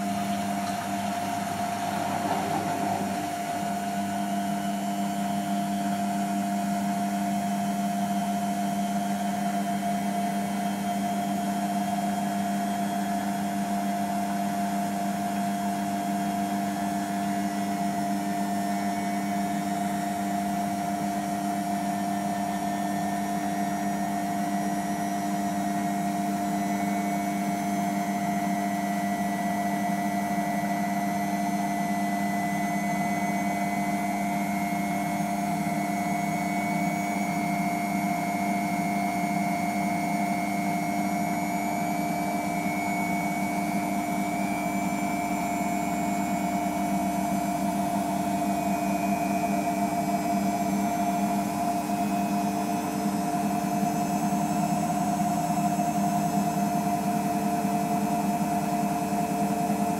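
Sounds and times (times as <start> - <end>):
washing machine motor whine: 0.0 - 59.9.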